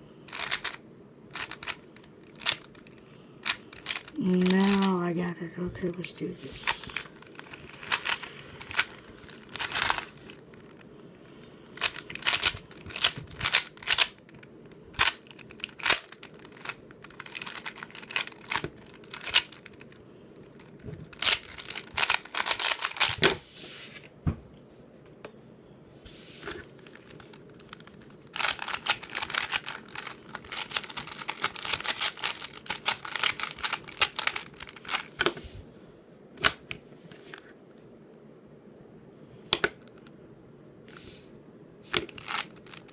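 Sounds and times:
plastic puzzle cube clicking: 0.3 - 4.9, 11.8 - 19.9, 21.1 - 23.2, 27.0 - 35.3, 41.9 - 42.9.

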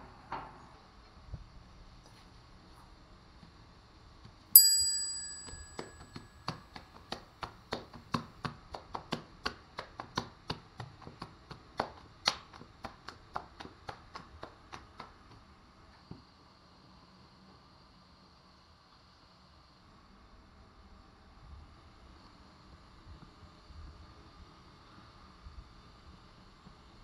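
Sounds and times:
bell-like ding: 4.6 - 6.3.

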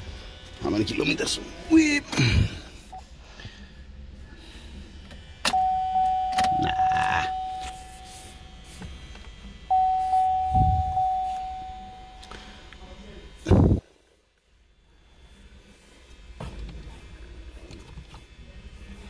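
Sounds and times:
car warning chime dinging: 5.5 - 8.1, 9.7 - 12.3.

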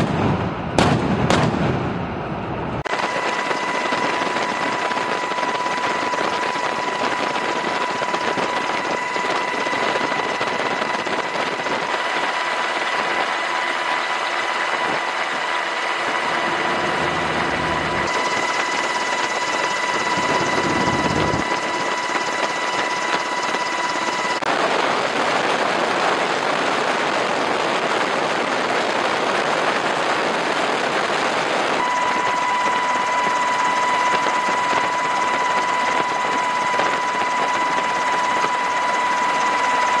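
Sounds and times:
aircraft engine drone: 2.1 - 24.5, 31.8 - 40.0
high engine whine: 2.1 - 24.5, 31.8 - 40.0.

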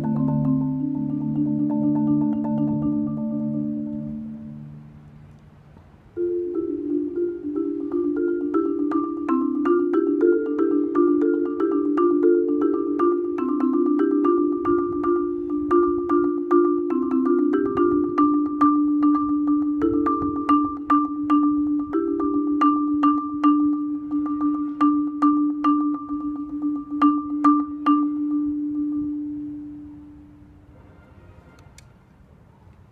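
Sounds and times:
marimba playing: 0.0 - 5.3, 6.2 - 30.6.

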